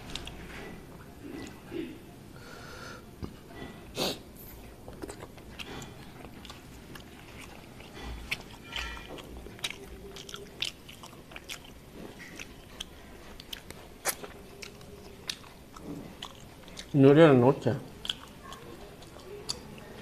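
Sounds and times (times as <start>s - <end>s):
chewing and wet mouth clicks: 4.8s - 17.0s, 17.9s - 20.0s.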